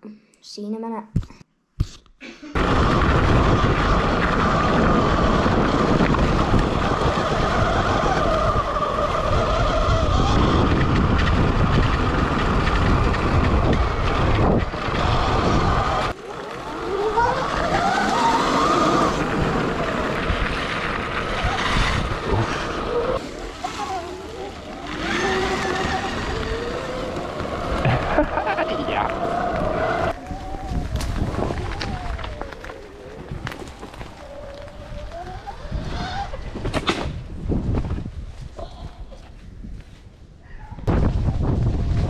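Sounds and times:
electric motor whine: 21.3 - 36.4.

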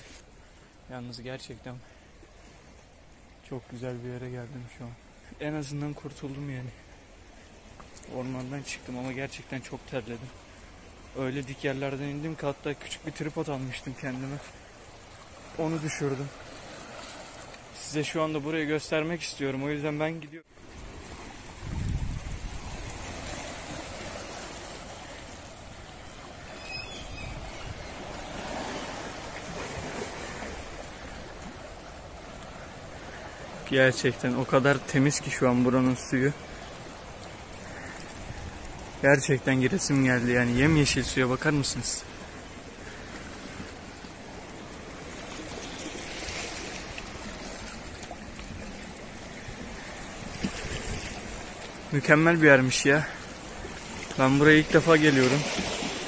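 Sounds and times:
waves washing over rocky shore: 27.9 - 56.0.

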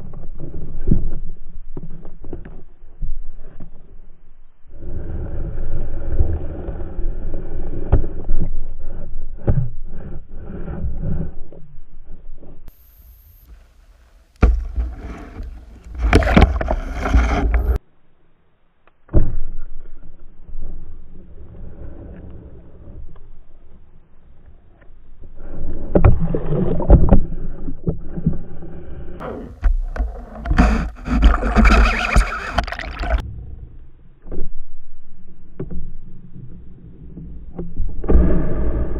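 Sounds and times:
underwater rumbling water: 12.8 - 17.8, 25.2 - 38.9
sharp underwater knocks: 14.4 - 17.8
underwater rushing water: 29.5 - 33.2.

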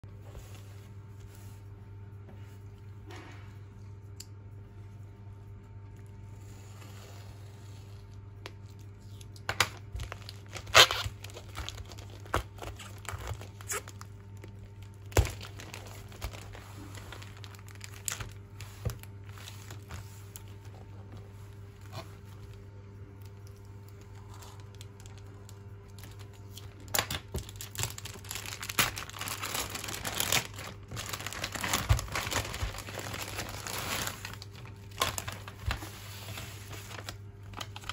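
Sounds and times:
steady low hum: 0.0 - 37.9
plastic film ripping: 8.5 - 20.5, 23.4 - 37.9
plastic bag crinkling: 8.5 - 20.6, 23.2 - 37.9.

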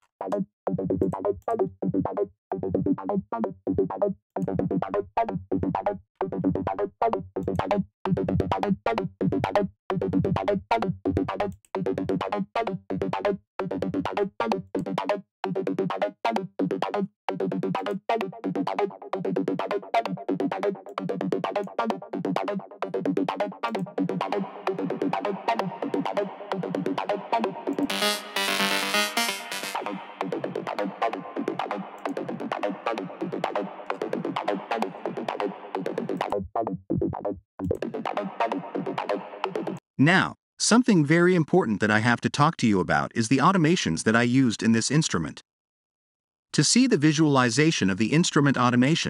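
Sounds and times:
choppy techno synth line: 7.4 - 36.2.

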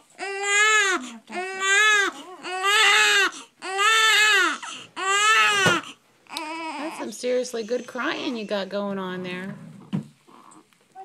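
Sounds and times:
baby crying: 0.2 - 8.6.

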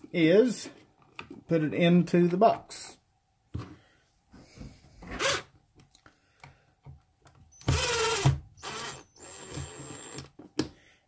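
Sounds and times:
cordless drill driving a screw: 7.6 - 10.3.

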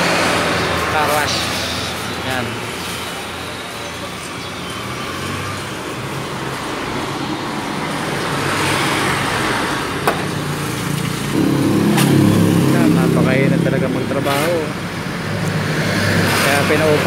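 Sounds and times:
vehicle engines: 0.0 - 17.0
vehicle passing: 5.0 - 17.0
sharp knock: 11.4 - 13.2.

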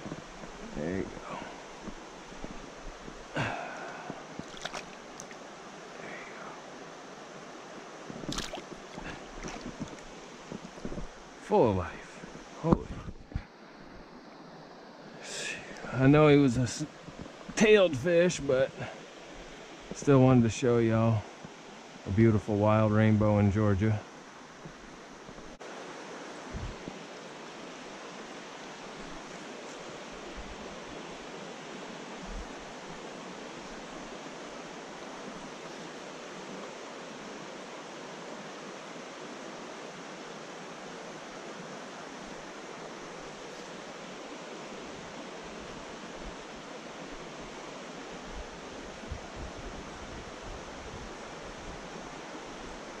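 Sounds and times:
stream water flowing: 0.0 - 53.0
soft low bumps: 8.1 - 11.2.

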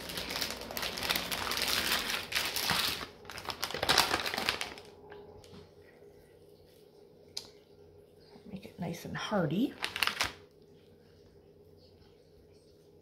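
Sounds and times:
plastic packet crinkling: 0.0 - 5.5, 9.7 - 10.6.

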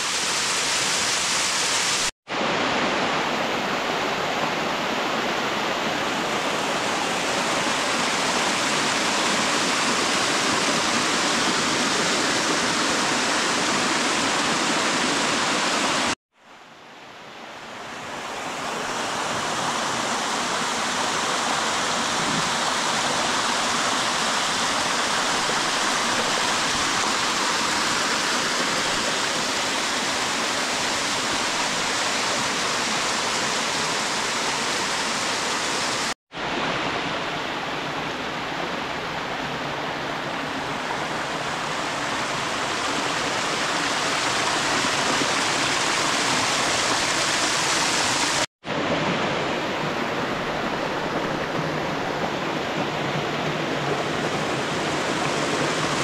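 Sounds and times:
stream water rushing over rocks: 0.0 - 56.0.

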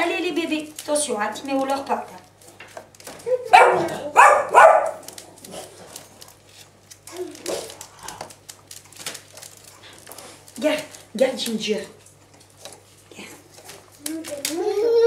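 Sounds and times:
dog barking: 3.5 - 5.0.

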